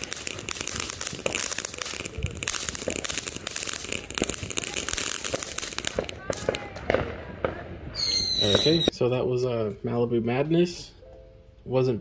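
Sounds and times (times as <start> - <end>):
firework fountain crackling: 0.0 - 9.0.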